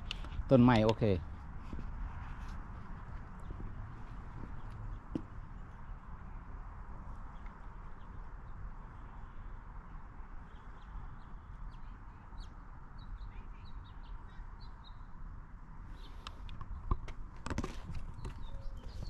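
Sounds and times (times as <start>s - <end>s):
low outdoor background: 0.0s - 19.0s
small birds chirping: 2.8s - 6.4s, 7.0s - 15.2s, 15.9s - 17.0s, 17.6s - 19.0s.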